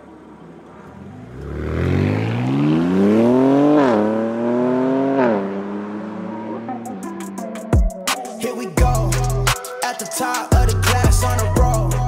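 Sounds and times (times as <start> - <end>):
car engine revving: 0.1 - 8.1.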